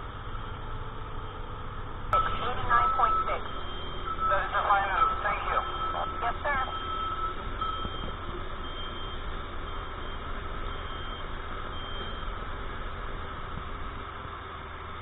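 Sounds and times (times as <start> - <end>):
machinery hum: 0.0 - 15.0
low rumble: 0.9 - 8.8
faint high beep: 2.2 - 9.2.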